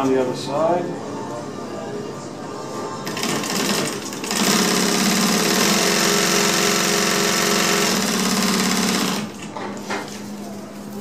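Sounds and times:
industrial sewing machine running: 0:03.0 - 0:09.5.

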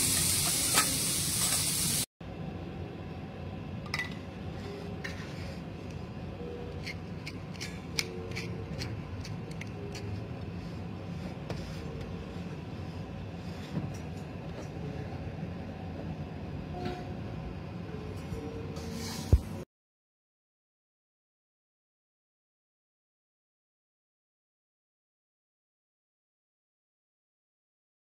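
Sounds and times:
steak sizzling on a griddle: 0:00.0 - 0:02.1.

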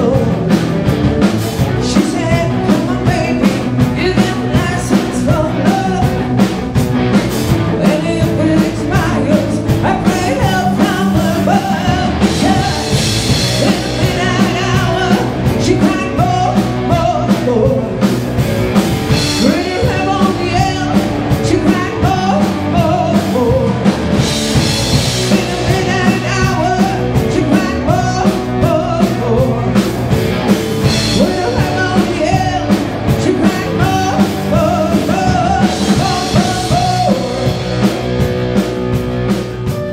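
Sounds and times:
woman singing: 0:00.0 - 0:00.5, 0:01.7 - 0:06.4, 0:07.7 - 0:18.1, 0:19.2 - 0:23.9, 0:25.1 - 0:29.9, 0:30.9 - 0:37.6
bass guitar: 0:00.0 - 0:39.9
drum kit: 0:00.0 - 0:39.9
electric guitars: 0:00.0 - 0:39.9.

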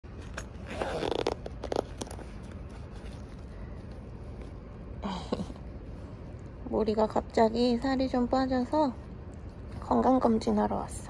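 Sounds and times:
steady low hum: 0:00.0 - 0:11.0
zipper pulled open: 0:00.1 - 0:03.2
fabric rustling: 0:00.1 - 0:04.9.

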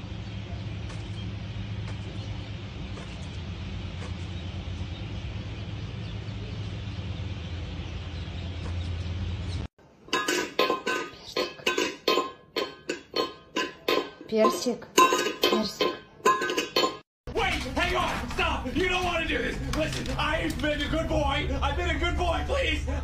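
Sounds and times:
low hum: 0:00.0 - 0:14.2, 0:16.4 - 0:23.0
metallic clinks: 0:10.1 - 0:17.0.

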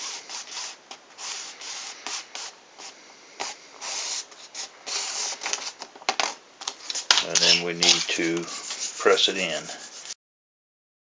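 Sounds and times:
fingers crinkling tape: 0:05.4 - 0:08.6.

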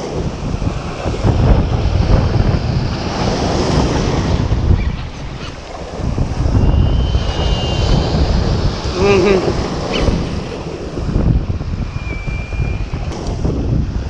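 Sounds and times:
wind buffeting microphone: 0:00.0 - 0:14.0
faint high whistle: 0:06.6 - 0:08.0, 0:11.9 - 0:13.0.

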